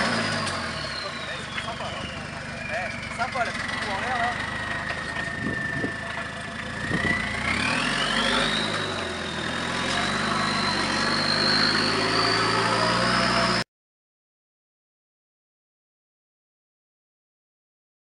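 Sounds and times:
diesel engine under load: 0:00.0 - 0:13.6
high turbo whine: 0:00.0 - 0:13.6.

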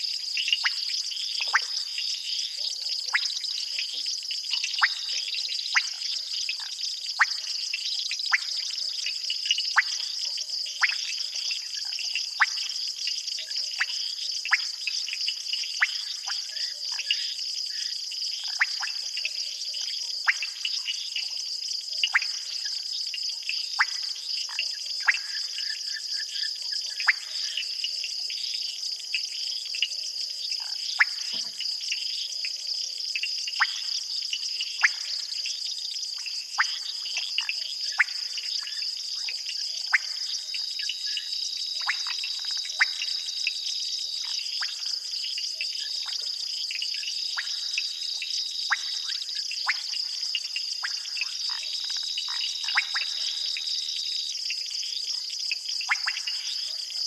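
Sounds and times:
crickets trilling: 0:00.0 - 0:57.0
sharp insect chirps: 0:13.8 - 0:57.0.

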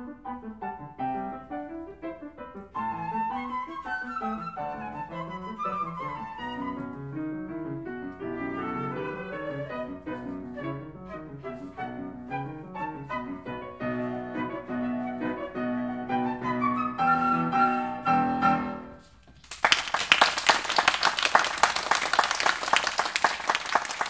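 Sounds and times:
piano playing: 0:00.0 - 0:19.1
flute playing: 0:02.7 - 0:07.5, 0:08.2 - 0:19.1
audience applause: 0:19.4 - 0:24.0.

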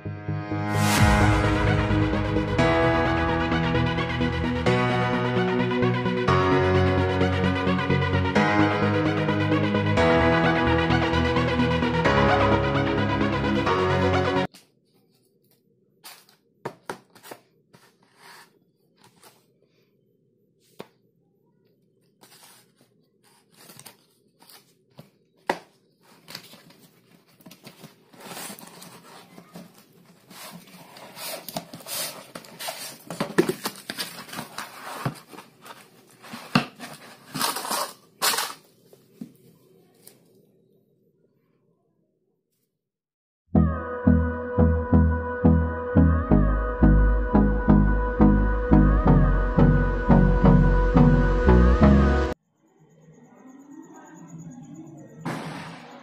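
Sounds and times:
paper rustling and tearing: 0:22.2 - 0:25.1, 0:26.0 - 0:38.7.

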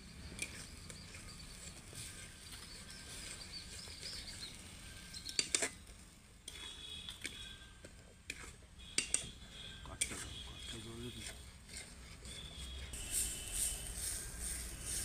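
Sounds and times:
birds chirping: 0:00.0 - 0:05.9
metal spatula scraping a pan: 0:00.2 - 0:15.0
food sizzling in a wok: 0:13.0 - 0:15.0.

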